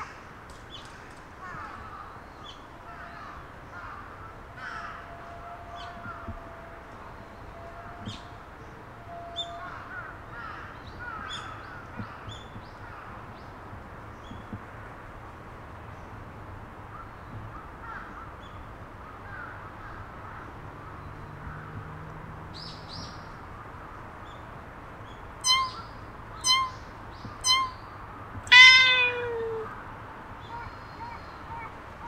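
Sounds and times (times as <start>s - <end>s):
cat meowing: 28.5s - 29.8s.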